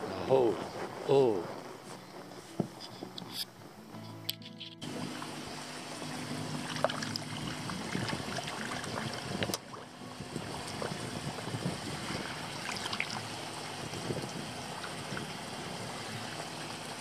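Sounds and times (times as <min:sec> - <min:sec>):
pond water splashing and lapping: 0:04.8 - 0:17.0.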